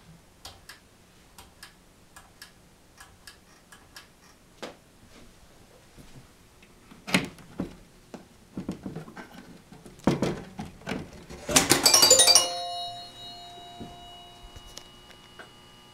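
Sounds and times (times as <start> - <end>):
bell-like tones: 11.8 - 15.0.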